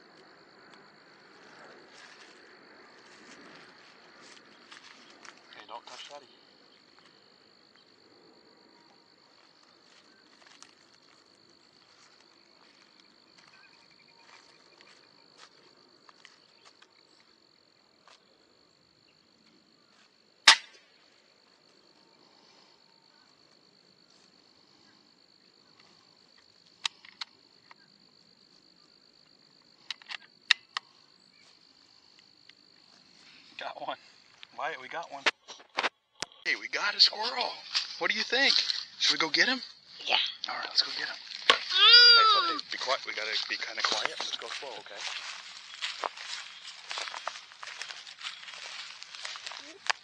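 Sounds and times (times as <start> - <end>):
insects droning: 0.0 - 50.0
air rifle shot: 20.5 - 20.8.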